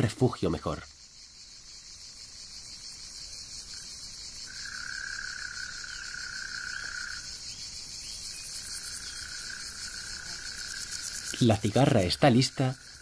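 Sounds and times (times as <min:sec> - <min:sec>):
insect low trill: 0:00.0 - 0:13.0
insects high-pitched buzz: 0:00.0 - 0:13.0.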